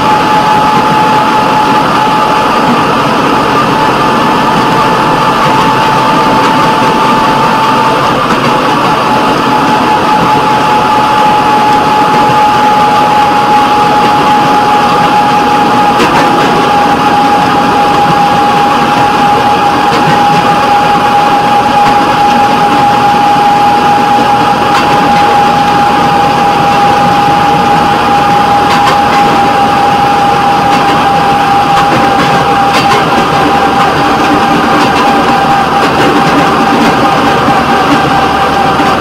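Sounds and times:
high whine: 0.0 - 39.0
rail vehicle engine and running noise: 0.0 - 39.0.

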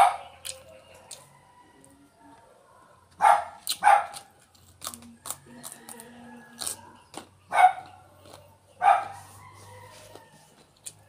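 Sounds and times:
dog barking: 0.0 - 0.3, 2.6 - 4.2, 7.5 - 8.0, 8.8 - 9.3
crunching of raw vegetables: 0.2 - 1.3, 3.4 - 8.6, 9.5 - 11.0.

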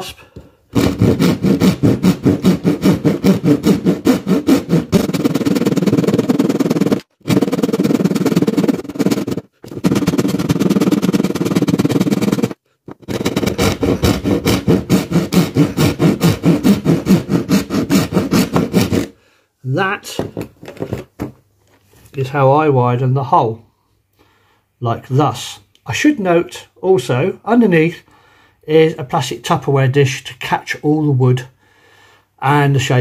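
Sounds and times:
hand rasp filing wood: 0.7 - 19.2.

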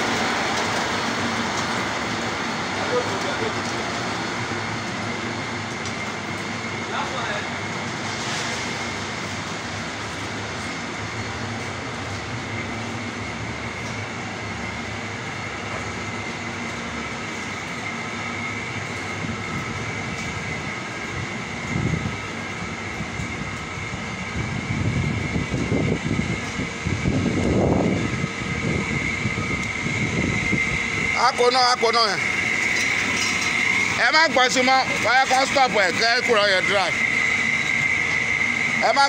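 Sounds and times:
machinery drone: 0.0 - 39.0
thin high whine: 0.0 - 39.0
low rumbles: 7.5 - 34.0.

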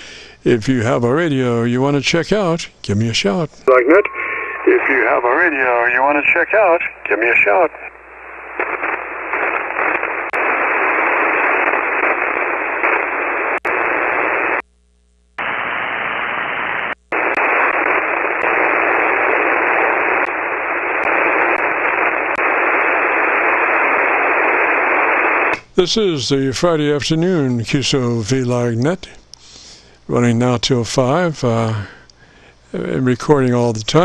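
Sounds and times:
radio static hiss: 0.0 - 34.0
faint static clicks: 0.2 - 34.0.

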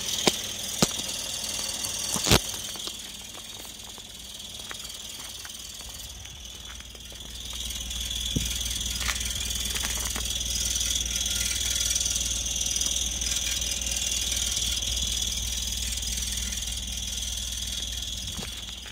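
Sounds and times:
high-pitched chirping squeal: 0.0 - 18.8
car engine idling: 0.0 - 18.9.

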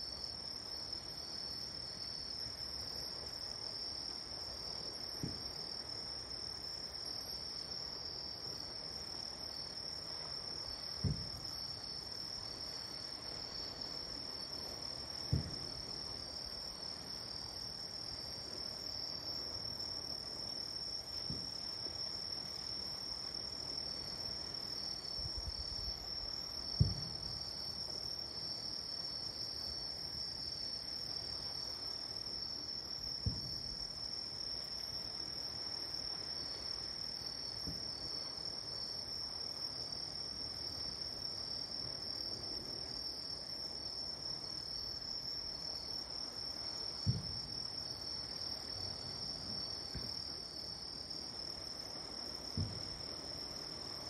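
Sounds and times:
night insects chirring: 0.0 - 54.0
distant fireworks booming: 11.0 - 11.4, 15.3 - 15.8, 26.7 - 27.4, 33.2 - 33.8, 47.0 - 47.5, 52.5 - 53.0.

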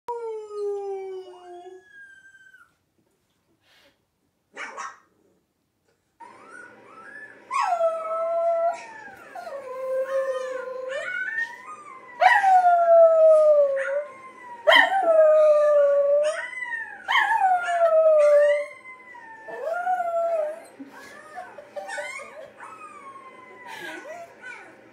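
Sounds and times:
dogs howling: 6.2 - 24.9.

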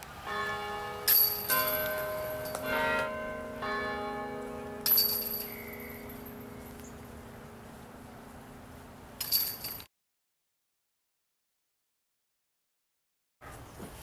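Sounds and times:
struck bell-like metallic tones: 0.2 - 9.8.

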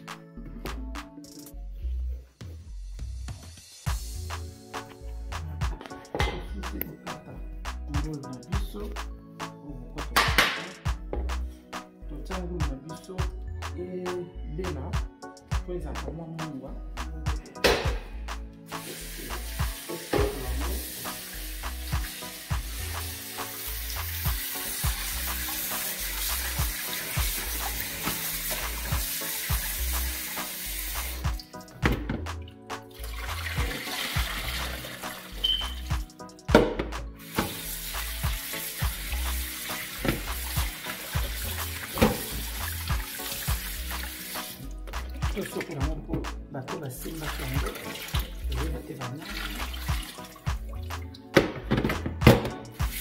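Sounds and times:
background music with steady beat: 0.0 - 53.0
tap water running into metal pot: 19.2 - 31.5, 32.9 - 35.9, 37.2 - 45.4, 47.3 - 48.5, 49.2 - 51.0
water splashing: 49.0 - 51.0.

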